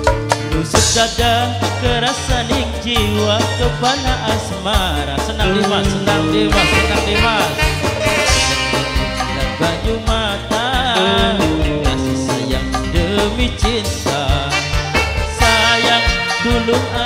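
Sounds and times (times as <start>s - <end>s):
live band music: 0.0s - 17.0s.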